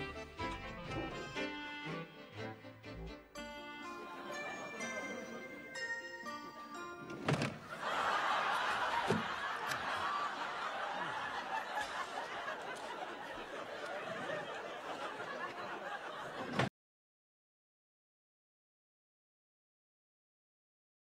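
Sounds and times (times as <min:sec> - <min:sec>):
studio audience laughing: 0:04.0 - 0:05.8, 0:07.6 - 0:16.7.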